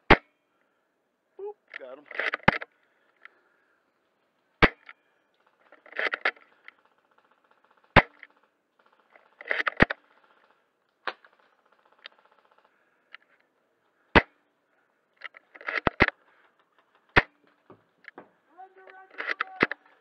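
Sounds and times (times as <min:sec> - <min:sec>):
airsoft rifle shots: 0:04.6 - 0:04.9, 0:05.5 - 0:12.7, 0:14.1 - 0:14.4, 0:16.9 - 0:17.6.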